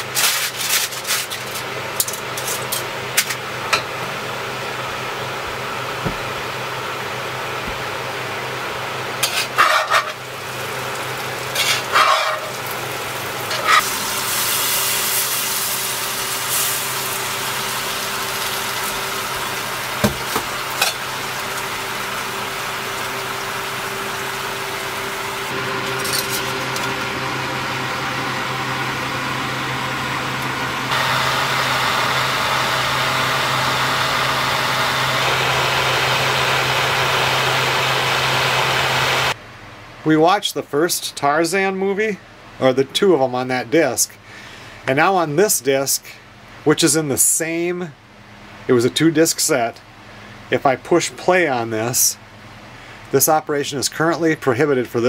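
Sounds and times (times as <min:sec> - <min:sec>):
low appliance hum: 0:00.0 - 0:55.0
food sizzling in a pan: 0:09.2 - 0:25.6.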